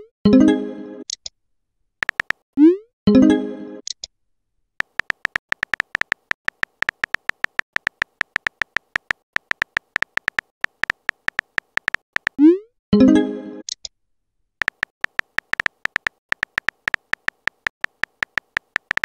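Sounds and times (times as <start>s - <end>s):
keyboard typing clicks: 2.0s - 2.4s, 4.8s - 12.4s, 14.6s - 19.0s.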